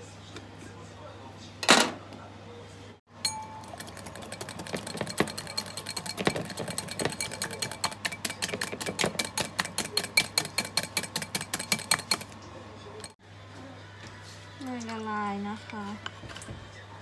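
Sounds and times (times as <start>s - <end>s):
whisk clinking against glass bowl: 3.2s - 12.4s.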